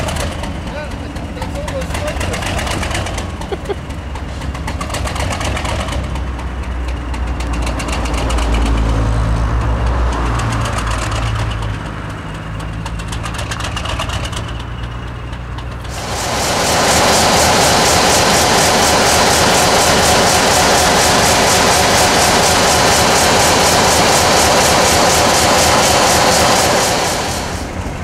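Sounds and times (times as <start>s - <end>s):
diesel engine idling: 0.0s - 5.2s, 15.7s - 28.0s.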